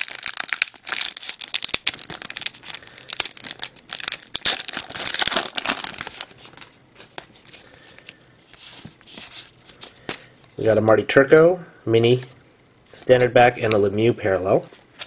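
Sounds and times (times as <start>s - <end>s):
card pack wrapper crinkling and tearing: 0.0s - 7.8s.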